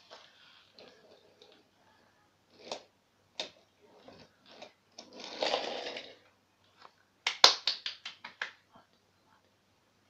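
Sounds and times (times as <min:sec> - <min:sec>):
toy train rolling on wooden track: 0:04.1 - 0:06.3.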